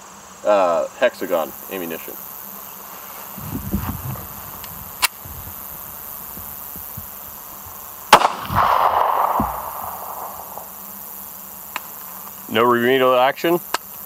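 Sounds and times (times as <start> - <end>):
sharp metallic click: 4.6 - 5.2
gunshot echo: 8.1 - 10.8
pistol shot: 8.1 - 10.8.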